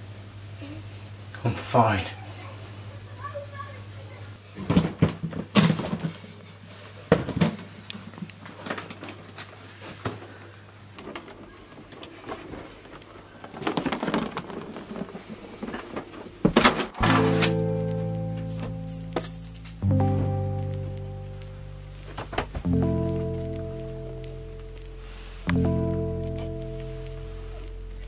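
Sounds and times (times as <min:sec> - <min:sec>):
low hum: 0:17.0 - 0:28.0.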